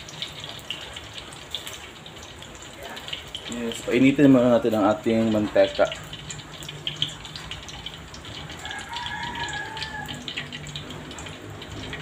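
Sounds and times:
oil hissing and crackling: 0:00.0 - 0:12.0
rooster crowing: 0:08.4 - 0:10.6.

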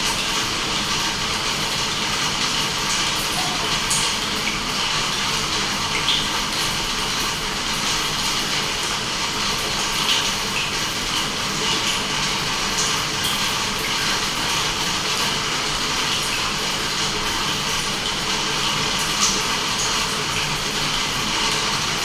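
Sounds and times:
aquarium air bubbling: 0:00.0 - 0:06.5
water drops plinking: 0:03.3 - 0:04.6.

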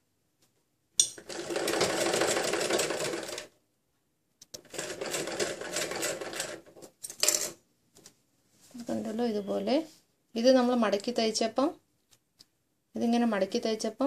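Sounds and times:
sewing machine stitching: 0:01.2 - 0:03.5, 0:04.6 - 0:06.8.

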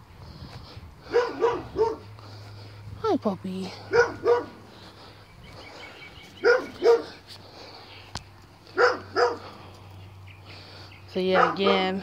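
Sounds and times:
dog barking: 0:01.1 - 0:02.1, 0:03.9 - 0:04.6, 0:06.4 - 0:07.2, 0:08.8 - 0:09.5, 0:11.3 - 0:12.0.

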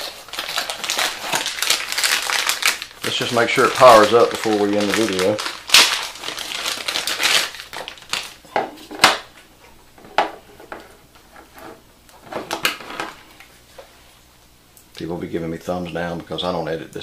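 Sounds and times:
plastic bag crinkling: 0:00.0 - 0:09.3.

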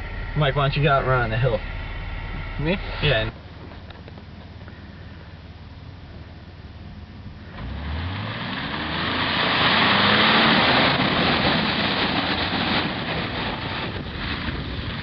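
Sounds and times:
car engine revving: 0:00.0 - 0:05.0, 0:06.0 - 0:14.8
muddy water spraying: 0:07.9 - 0:14.9.

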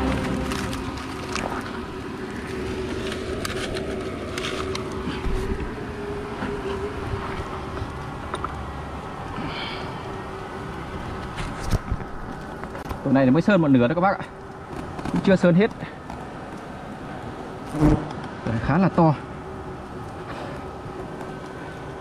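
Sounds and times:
wind rumbling on microphone: 0:00.0 - 0:13.5
bees buzzing: 0:16.0 - 0:18.4.

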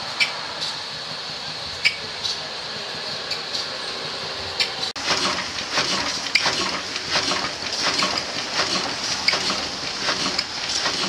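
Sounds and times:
oil engine knocking: 0:05.0 - 0:11.0.

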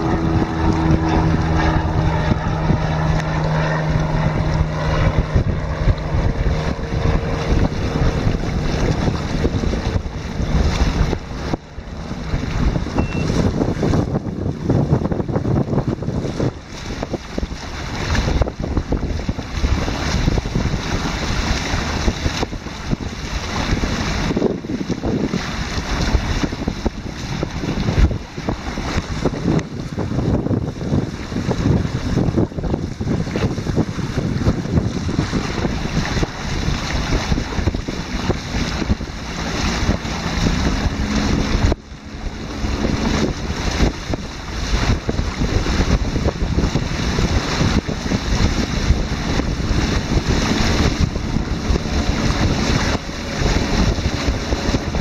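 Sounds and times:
water rushing along hulls: 0:00.0 - 0:55.0
wind buffeting microphone: 0:00.0 - 0:55.0.

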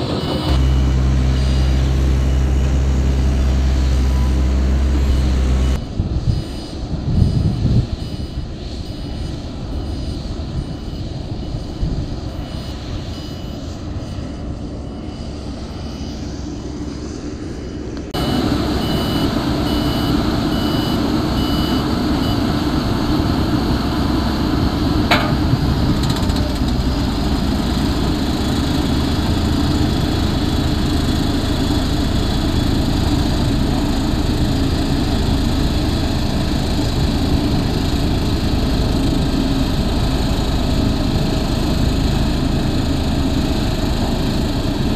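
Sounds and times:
road roller diesel engine: 0:00.0 - 0:44.9
faint repeating beep: 0:00.1 - 0:13.6.

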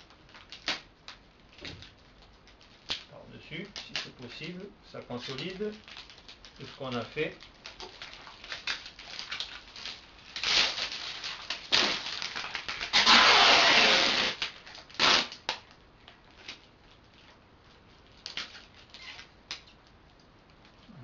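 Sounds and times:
adhesive tape rasping off roll: 0:05.2 - 0:15.7, 0:18.2 - 0:19.8.

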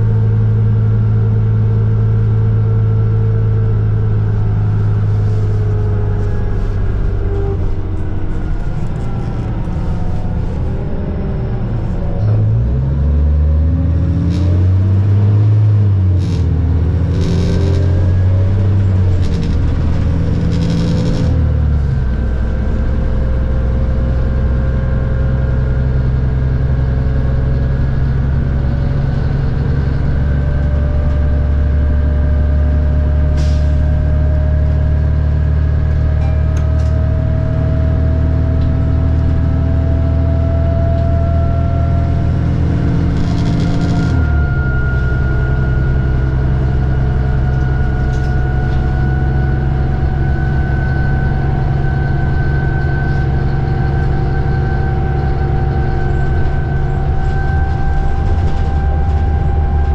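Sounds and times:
diesel bus engine revving: 0:00.0 - 0:59.9
thin rising whine: 0:35.4 - 0:59.9.

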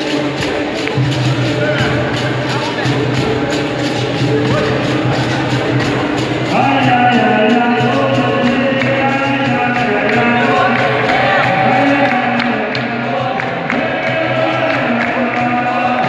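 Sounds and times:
hand drum rhythm: 0:00.0 - 0:16.0
group singing chorus: 0:06.5 - 0:16.0.

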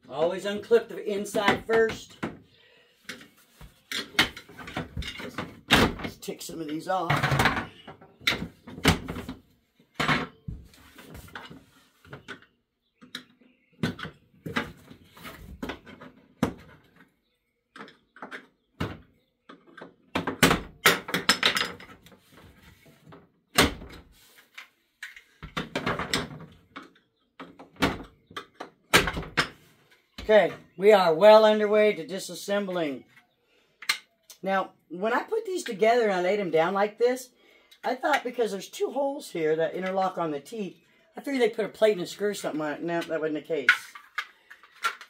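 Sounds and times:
plastic parts rattling: 0:03.1 - 0:09.4, 0:43.0 - 0:45.0
hard plastic pieces clacking: 0:33.8 - 0:34.4, 0:42.3 - 0:45.0.

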